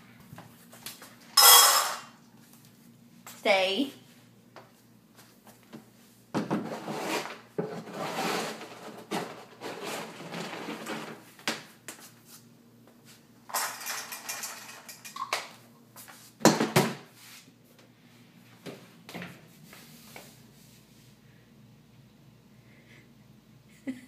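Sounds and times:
dishes and cutlery clinking: 1.4s - 2.1s.

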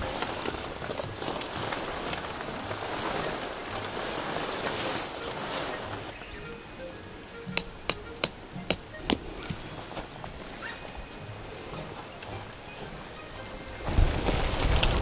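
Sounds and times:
rustling: 0.0s - 6.1s
hammer striking tent peg: 7.5s - 9.6s.

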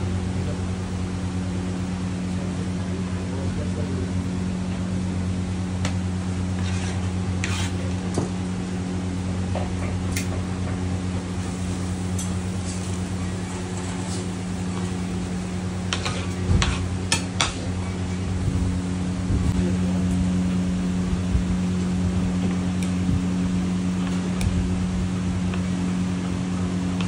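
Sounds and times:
kitchen machinery hum: 0.0s - 27.0s
clinks and scrapes of dishes: 15.9s - 17.6s.

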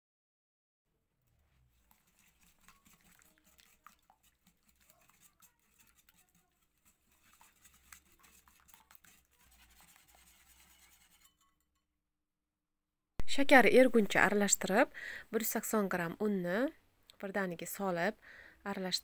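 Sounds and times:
whisk ticking against glass bowl: 1.8s - 11.8s.

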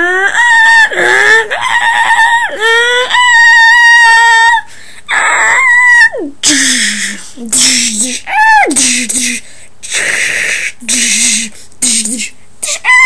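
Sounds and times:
person screaming: 0.0s - 7.2s, 8.3s - 8.8s, 12.6s - 13.0s.

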